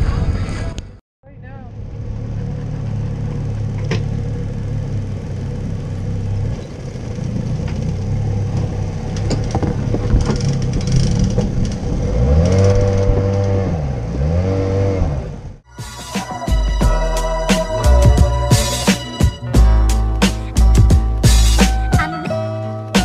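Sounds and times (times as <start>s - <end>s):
engine running and revving: 1.6s - 15.7s
knocks and clatters: 8.5s - 13.6s.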